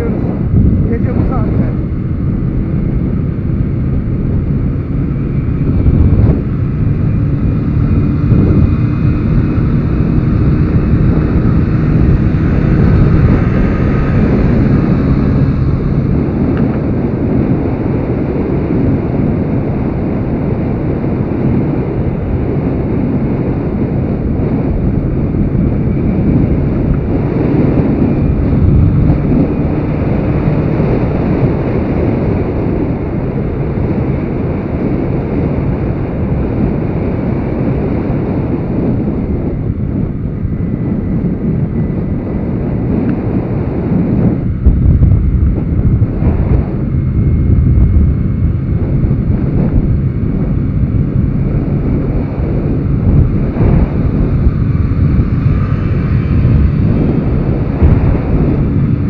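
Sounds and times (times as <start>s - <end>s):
wind buffeting microphone: 0.0s - 59.0s
small engine running: 44.8s - 59.0s.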